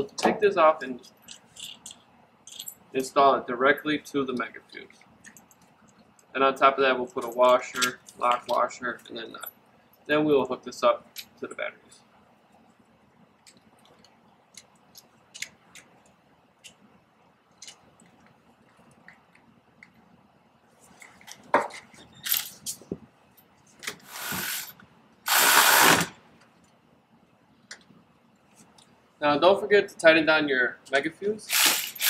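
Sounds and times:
power tool bursts: 24.0 - 26.2, 31.5 - 32.0.

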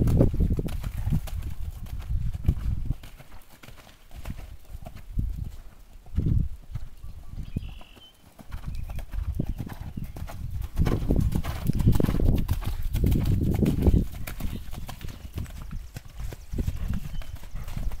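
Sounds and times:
hoofbeats on sand: 0.0 - 18.0.

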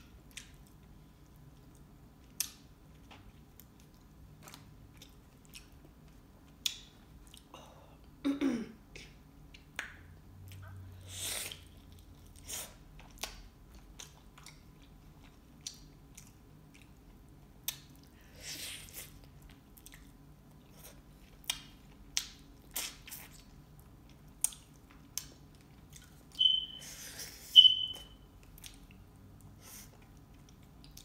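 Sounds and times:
chewing with wet clicks: 0.0 - 7.5, 9.4 - 10.9, 11.5 - 18.2, 19.0 - 26.8, 27.6 - 31.0.

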